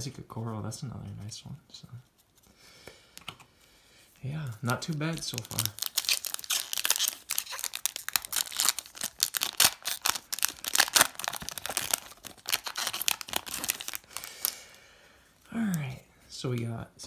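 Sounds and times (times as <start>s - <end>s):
foil wrapper crinkling and tearing: 4.6s - 14.8s.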